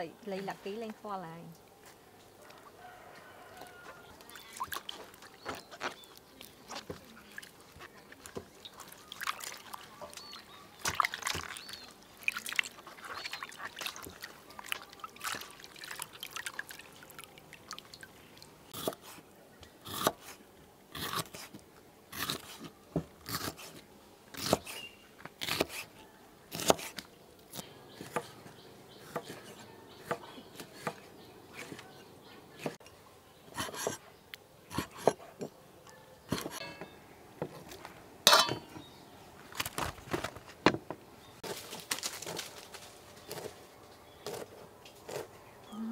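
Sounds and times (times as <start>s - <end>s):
water sloshing in steel bowl: 4.2s - 18.6s, 37.6s - 38.9s
knife chopping on wooden block: 26.5s - 27.0s.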